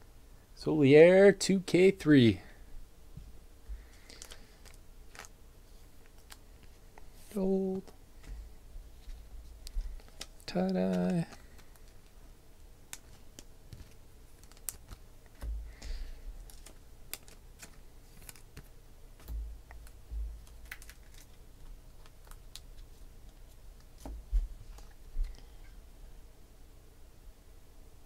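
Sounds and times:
cards clicking and flicking: 3.9 - 5.3, 9.6 - 12.2, 12.9 - 24.1
soft low thumps of cards: 14.9 - 16.7, 18.6 - 20.7, 24.0 - 25.4.

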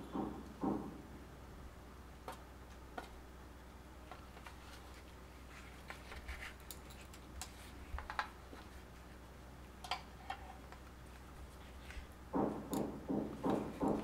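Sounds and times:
rhythmic knocking: 0.0 - 1.1, 12.3 - 14.0.

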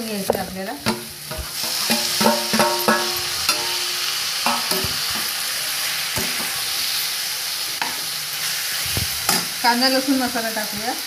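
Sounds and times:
vegetables sizzling in hot oil: 0.0 - 11.0
spatula knocking metal pan: 0.3 - 5.0.

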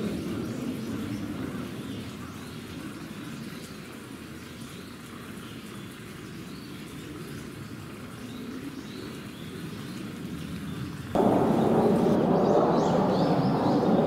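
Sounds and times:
low rumble: 11.2 - 14.0.

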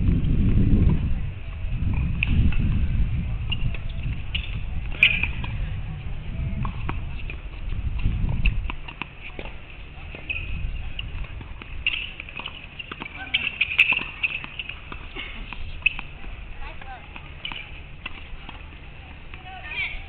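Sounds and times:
low wind rumble on microphone: 0.0 - 20.0
tennis ball hitting court and racket: 3.5 - 5.6, 6.6 - 20.0.

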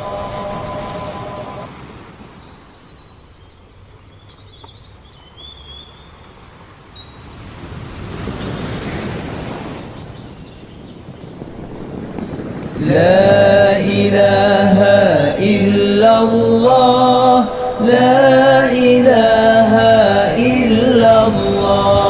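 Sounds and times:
chanted note: 0.0 - 1.8
wave breaking: 0.0 - 2.6, 7.4 - 22.0
ocean surf washing on shore: 0.0 - 3.8, 6.0 - 22.0.

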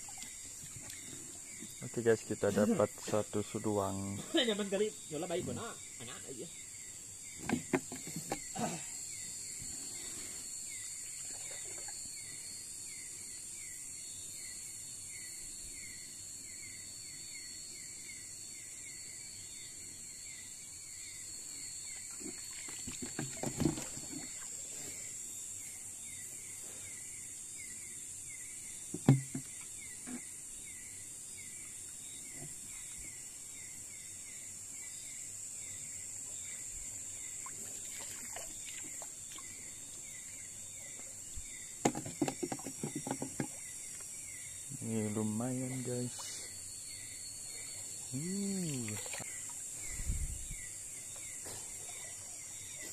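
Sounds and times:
insects buzzing: 0.0 - 52.9
insects chirping: 0.0 - 52.9
dull knocks or splashes: 22.2 - 24.4, 28.9 - 29.6.

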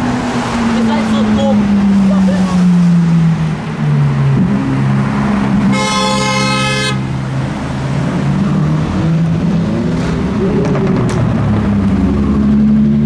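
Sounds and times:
car engines running: 0.0 - 13.0
car horn: 5.7 - 7.1.

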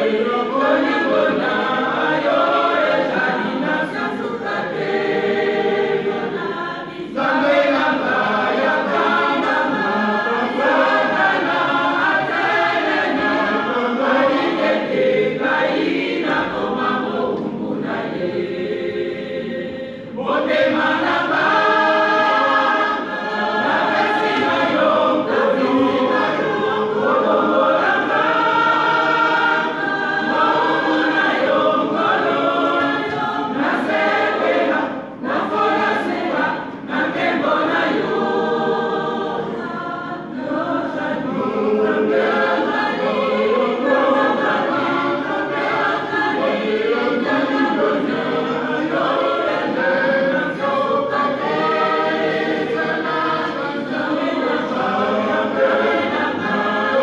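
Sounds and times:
choir singing: 0.0 - 57.0.

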